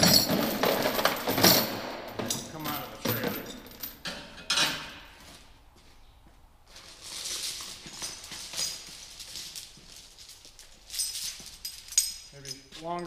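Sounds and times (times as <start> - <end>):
chain links clinking: 0.0 - 5.0, 6.7 - 13.0.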